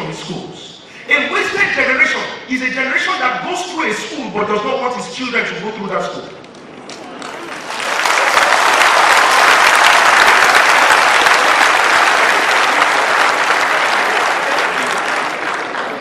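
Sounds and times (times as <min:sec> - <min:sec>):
audience applauding: 0:06.9 - 0:16.0.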